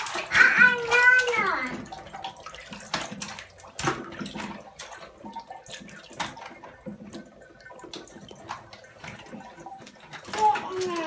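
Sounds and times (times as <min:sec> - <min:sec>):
bathwater splashing in a tub: 0:00.0 - 0:11.0.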